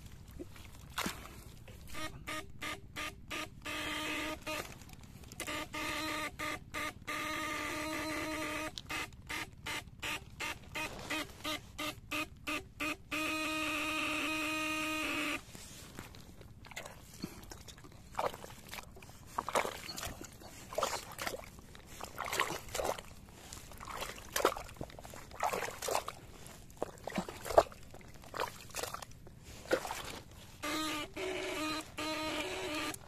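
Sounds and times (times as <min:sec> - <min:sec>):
wet squelches of mud and water: 0:00.0 - 0:05.9, 0:15.3 - 0:33.0.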